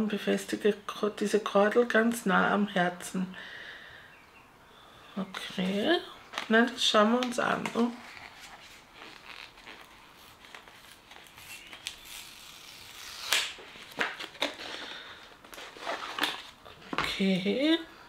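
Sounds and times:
packaging rustling and crinkling: 5.4 - 17.1.

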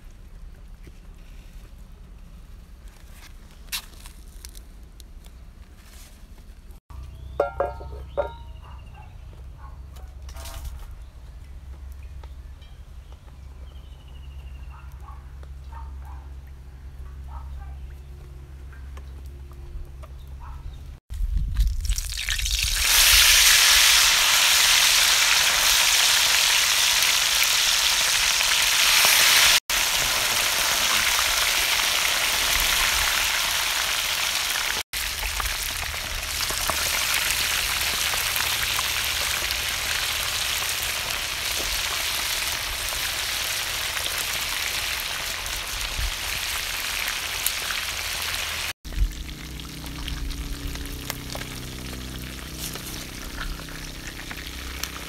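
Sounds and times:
fish deep-frying in hot oil: 21.3 - 55.0.

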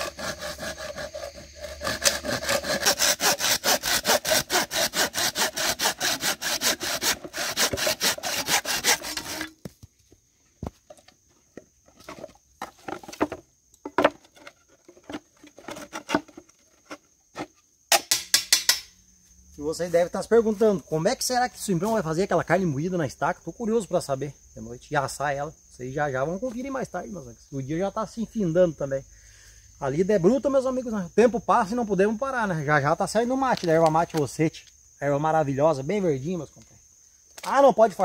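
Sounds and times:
hand saw cutting bamboo: 0.0 - 9.6.

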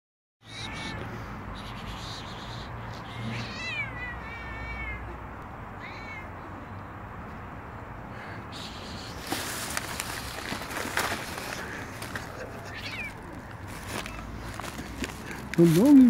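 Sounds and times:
cats meowing: 0.4 - 6.9, 10.1 - 16.0.

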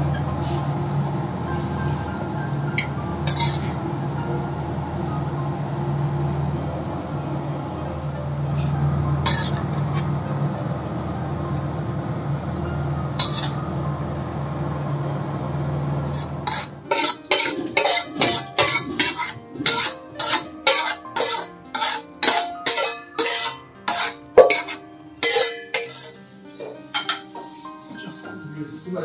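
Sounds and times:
metal spatula scraping iron wok: 3.3 - 3.8, 9.2 - 10.1, 13.2 - 13.6, 16.0 - 26.2.

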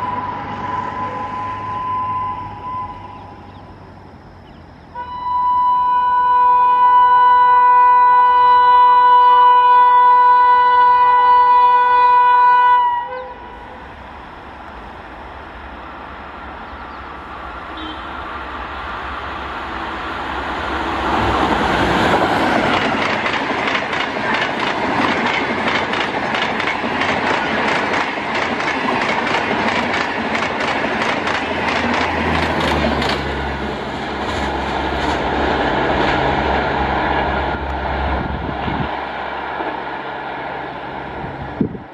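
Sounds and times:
locomotive horn: 0.0 - 3.5, 4.9 - 13.8, 17.7 - 18.3
train wheels clattering over joints: 22.1 - 33.4.

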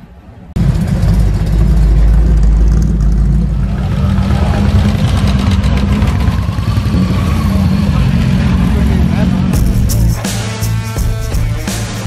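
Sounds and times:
car engine rumble driving past: 0.5 - 9.6
motorcycles riding off: 0.6 - 9.9.

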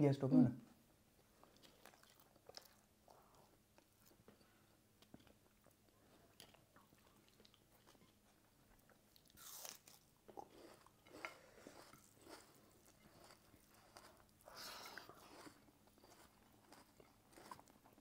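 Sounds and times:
crunchy onion bites and chewing: 8.8 - 18.0.

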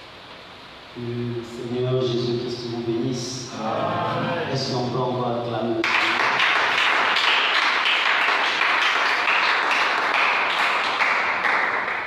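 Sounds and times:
congregation applauding: 5.8 - 12.0.

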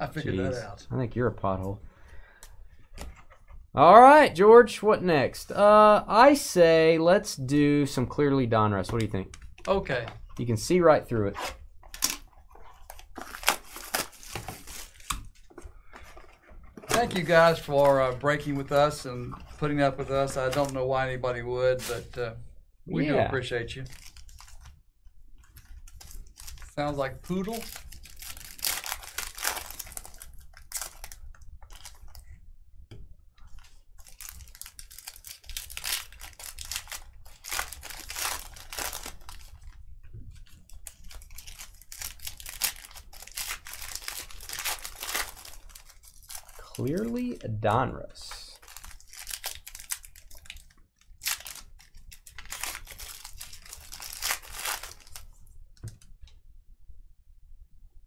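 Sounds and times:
plastic wrapping crinkling and tearing: 11.8 - 19.0, 19.6 - 21.2, 21.8 - 22.2, 23.8 - 24.8, 25.4 - 32.3, 33.4 - 47.4, 48.5 - 55.4.

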